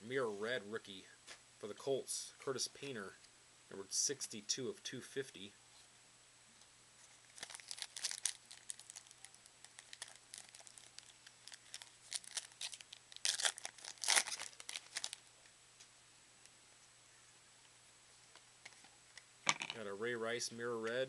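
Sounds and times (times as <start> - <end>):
wrapper tearing and crinkling: 7.3 - 15.2.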